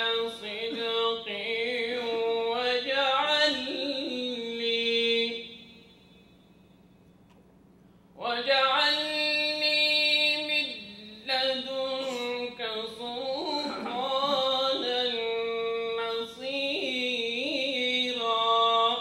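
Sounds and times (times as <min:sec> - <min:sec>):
solo voice chanting: 0:08.2 - 0:19.0.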